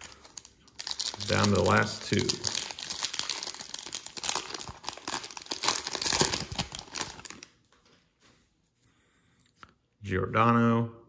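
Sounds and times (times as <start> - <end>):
foil wrapper tearing and crinkling: 0.0 - 7.5.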